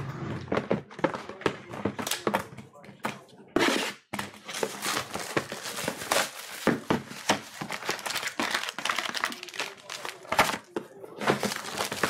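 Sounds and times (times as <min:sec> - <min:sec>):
plastic wrapping crinkling: 0:04.4 - 0:12.0
plastic wrapping ripping: 0:04.5 - 0:10.7, 0:11.3 - 0:12.0.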